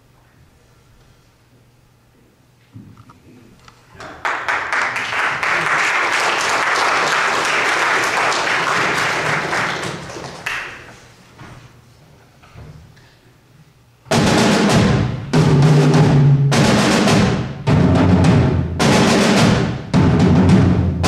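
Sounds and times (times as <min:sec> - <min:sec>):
audience applause: 0:04.0 - 0:11.0.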